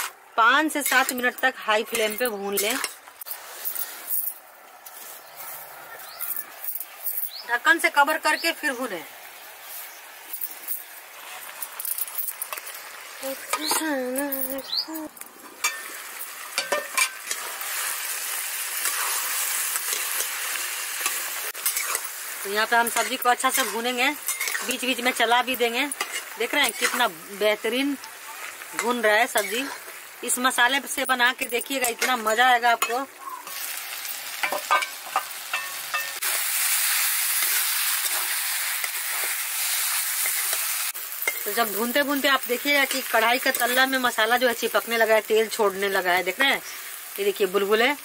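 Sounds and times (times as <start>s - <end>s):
curry sizzling: 0.0s - 48.0s
stirring in pan: 15.4s - 25.0s
metal clinks of spatula on pan: 34.4s - 36.2s.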